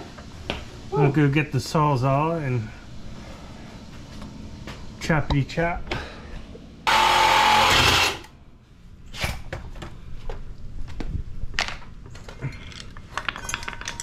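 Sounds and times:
loud burst of noise: 0:06.9 - 0:08.3
metal bolts and tools clinking: 0:12.4 - 0:14.0.

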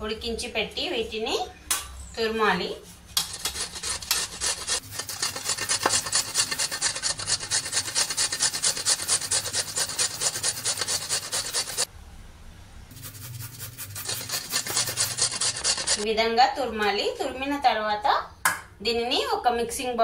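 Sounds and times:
potato rasping on a grater: 0:03.2 - 0:11.9, 0:12.9 - 0:16.0.

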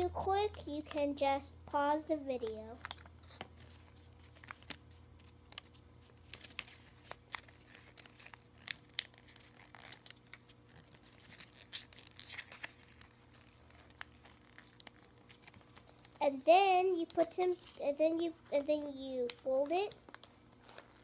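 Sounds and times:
paper crinkling as folded: 0:02.4 - 0:18.2, 0:18.8 - 0:21.0.

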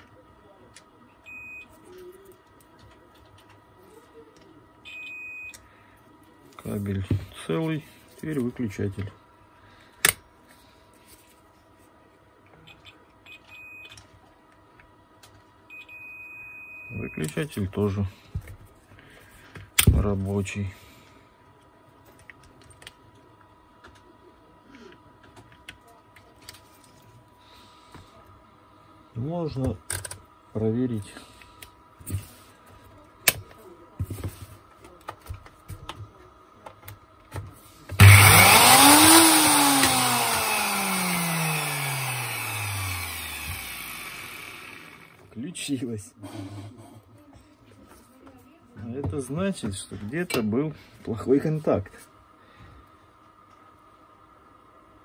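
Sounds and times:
multimeter beep: 0:01.2 - 0:01.7, 0:04.9 - 0:05.6, 0:15.7 - 0:17.4
test probes clicking: 0:38.0 - 0:44.8.

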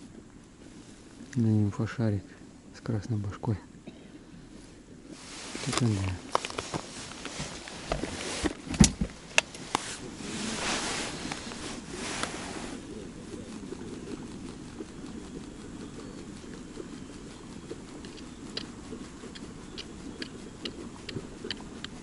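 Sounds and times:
steady low rumble: 0:00.0 - 0:22.0
clothing and gear rustling: 0:05.1 - 0:13.8
knocks and clicks of gear: 0:05.7 - 0:09.8.

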